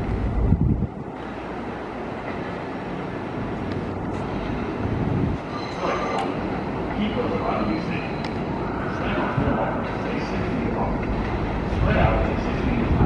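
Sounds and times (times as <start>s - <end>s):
subway train running on tracks: 0.0s - 13.0s
thin high squeal: 5.4s - 6.5s.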